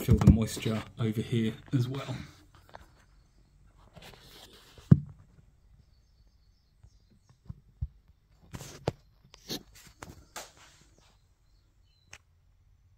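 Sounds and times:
scraping and rustling: 0.0s - 5.5s, 8.4s - 11.3s.

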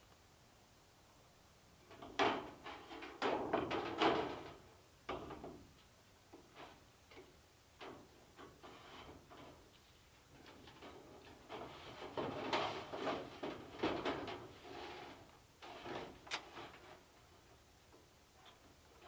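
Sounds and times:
sheet metal clanking on metal roof: 1.9s - 5.6s, 10.5s - 17.0s
light metal taps and scrapes: 5.8s - 18.7s.

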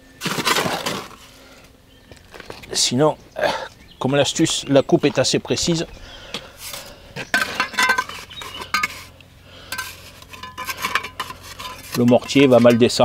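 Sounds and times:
trowel scraping mortar: 0.2s - 1.3s, 6.6s - 13.0s
trowel clinking on concrete blocks: 7.3s - 9.0s, 9.7s - 13.0s.

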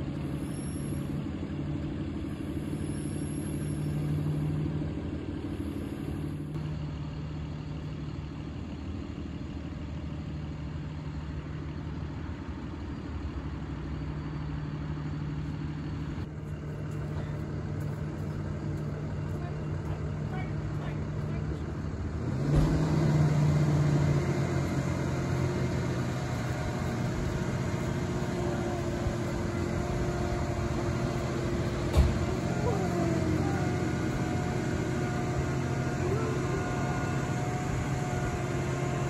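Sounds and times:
truck engine idling: 0.0s - 39.0s.

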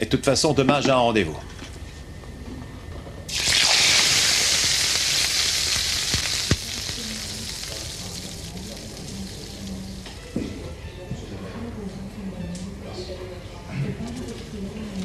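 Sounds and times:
meat sizzling in a frying pan: 3.3s - 10.1s.

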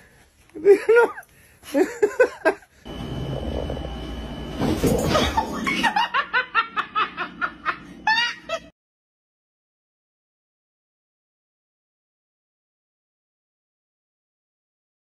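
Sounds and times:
person laughing hard: 0.6s - 2.7s, 5.2s - 8.7s.

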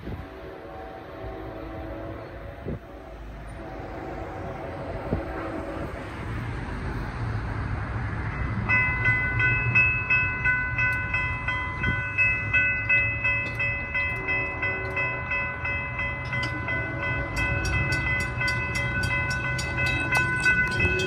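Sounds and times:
train horn: 0.0s - 6.2s, 14.1s - 15.6s, 16.2s - 21.0s
railroad crossing bell ringing: 7.9s - 21.0s.

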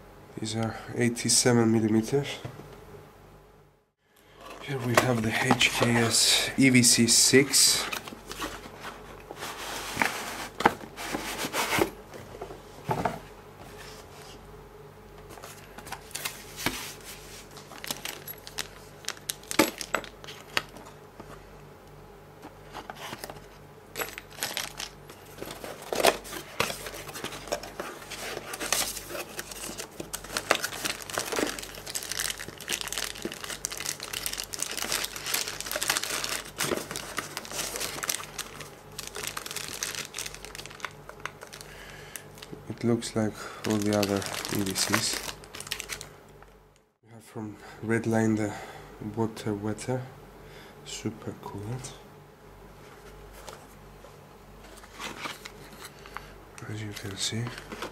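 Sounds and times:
cardboard and plastic rustling: 4.3s - 14.4s, 15.2s - 21.5s, 22.4s - 46.5s, 52.8s - 56.2s, 56.8s - 57.9s.

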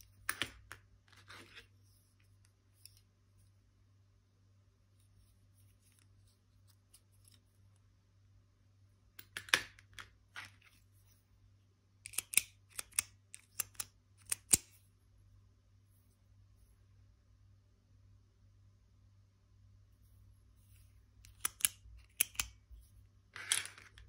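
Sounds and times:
ballpoint pens clicking: 12.1s - 14.7s, 21.2s - 22.6s.

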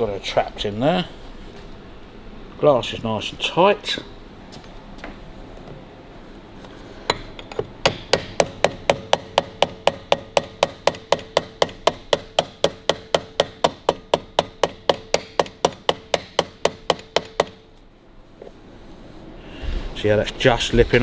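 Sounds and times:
hammer tapping a punch: 7.1s - 17.6s.

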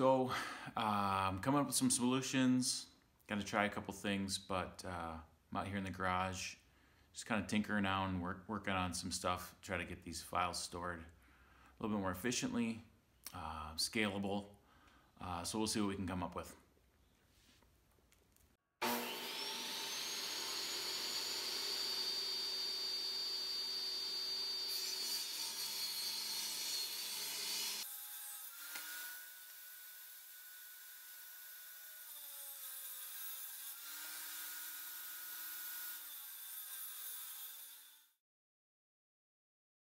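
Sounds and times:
table saw whining: 18.8s - 30.5s
saw cutting through board: 18.8s - 38.2s.

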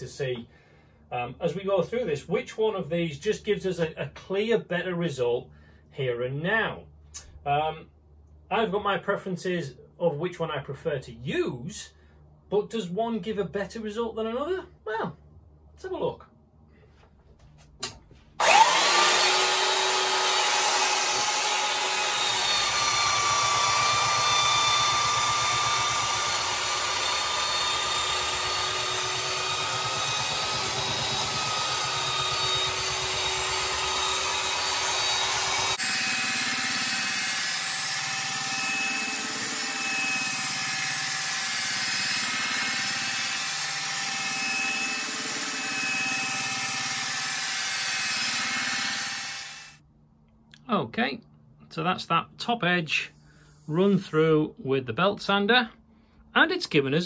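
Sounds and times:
belt sander sanding wood: 18.4s - 49.6s.

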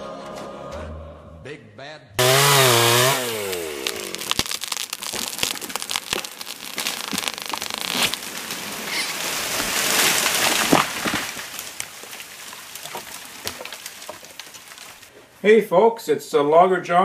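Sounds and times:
chainsaw winding down: 2.2s - 6.4s
tree crashing through branches: 2.2s - 15.1s
wood cracking and snapping: 2.2s - 15.1s.

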